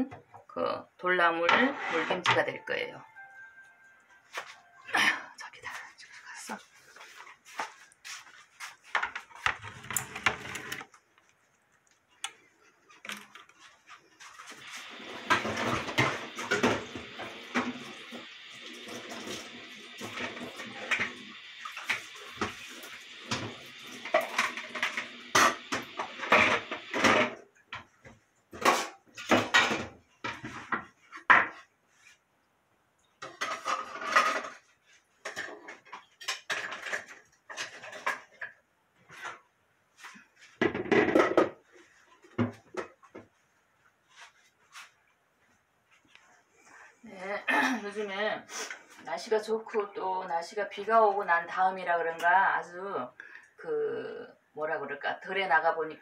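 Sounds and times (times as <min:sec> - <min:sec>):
dishes clinking and knocking: 0:23.2 - 0:27.9, 0:28.6 - 0:31.6, 0:33.2 - 0:38.6, 0:40.6 - 0:41.6.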